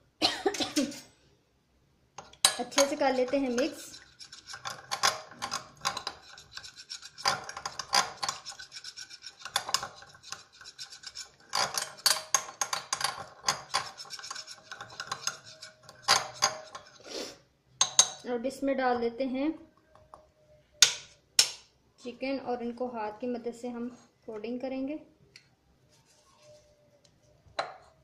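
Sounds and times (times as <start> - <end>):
paste scraping in glass bowl: 2.7 - 12.0, 12.7 - 17.0.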